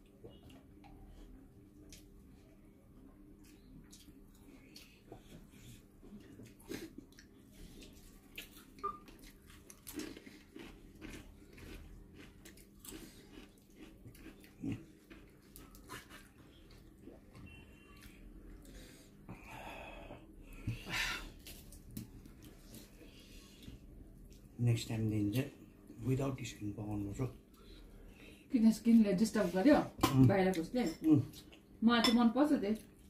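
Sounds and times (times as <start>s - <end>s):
man chewing food: 0.0s - 26.0s.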